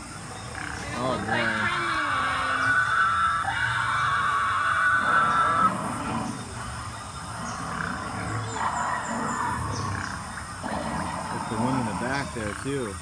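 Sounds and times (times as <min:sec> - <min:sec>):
dinosaur growls and roars: 0:00.5 - 0:12.7.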